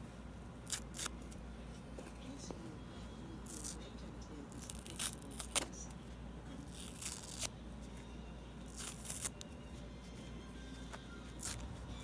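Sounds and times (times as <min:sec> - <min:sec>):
foam sponge tearing: 0:00.6 - 0:01.2, 0:04.5 - 0:05.7, 0:06.6 - 0:07.6, 0:08.6 - 0:09.4, 0:11.3 - 0:11.8.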